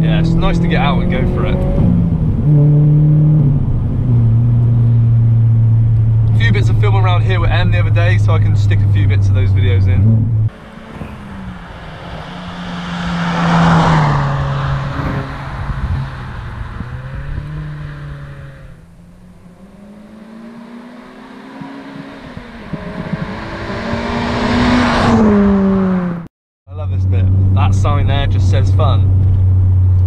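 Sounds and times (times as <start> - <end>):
car driving past: 10.0 - 26.2.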